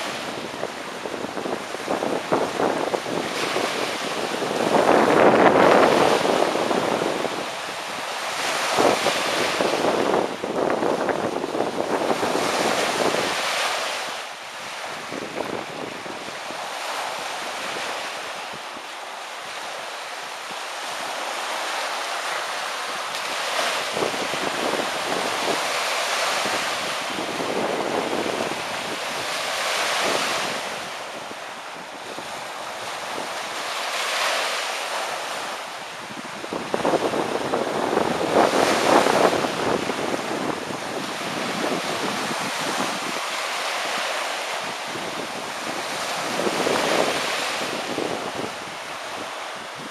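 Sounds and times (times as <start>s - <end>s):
wind buffeting microphone: 0.0s - 18.8s, 23.2s - 49.9s
waves washing on shore: 0.0s - 49.9s.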